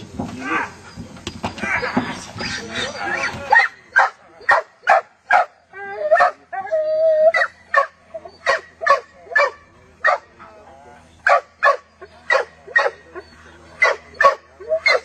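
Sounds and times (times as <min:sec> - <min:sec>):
dog whining: 0:01.6 - 0:03.7
dog barking: 0:03.5 - 0:05.5, 0:07.4 - 0:10.3, 0:11.2 - 0:13.0, 0:13.8 - 0:15.0.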